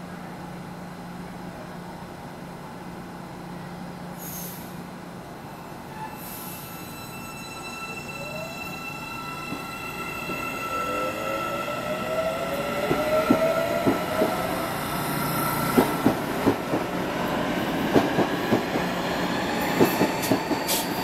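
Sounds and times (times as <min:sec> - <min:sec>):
train air hisses: 0:04.1 - 0:05.0, 0:06.1 - 0:07.0, 0:19.5 - 0:21.0
electric train whine: 0:05.3 - 0:21.0.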